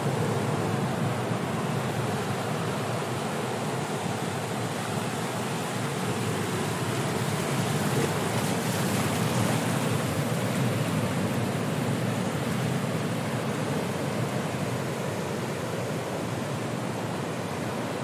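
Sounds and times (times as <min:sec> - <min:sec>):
ocean surf on rocky shore: 0:00.0 - 0:18.0.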